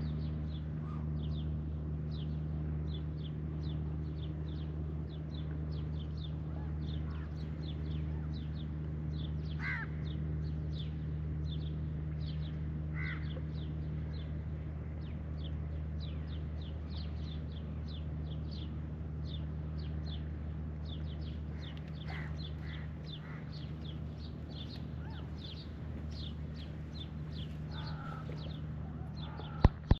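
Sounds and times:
low mechanical hum: 0.0 - 30.0
small birds chirping: 0.0 - 30.0.

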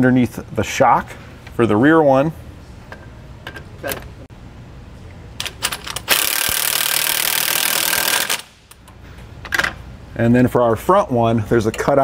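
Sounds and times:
impact wrench hammering nut: 5.4 - 8.8.

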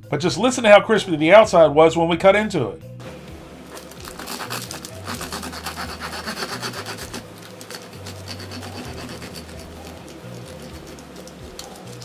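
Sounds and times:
knife sawing through crunchy crust: 3.7 - 12.0.

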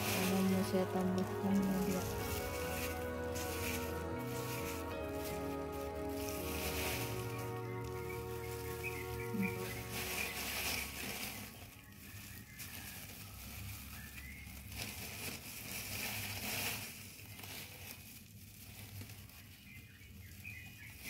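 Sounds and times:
gravelly potting media rustling: 0.0 - 21.0
plastic gloves crinkling: 0.0 - 21.0.

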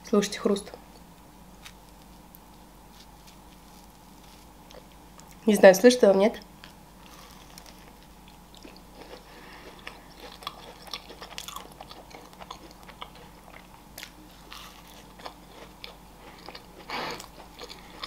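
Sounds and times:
chewing crunchy macaron: 3.0 - 5.4, 6.6 - 18.0.

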